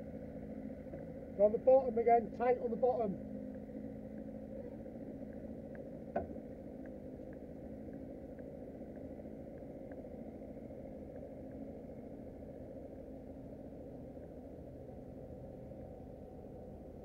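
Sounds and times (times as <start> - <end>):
boat engine idling: 0.0 - 17.0
faint light ticks: 3.4 - 13.1.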